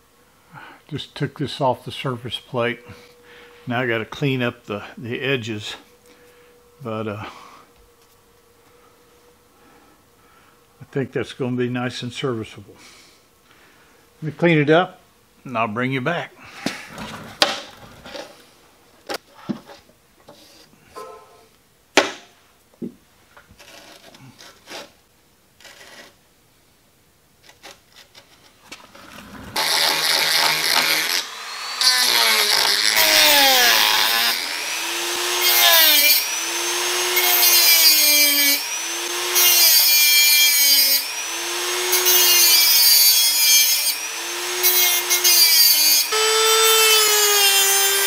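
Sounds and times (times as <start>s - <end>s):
rotary tool grinding metal: 25.6s - 26.2s, 28.3s - 48.0s.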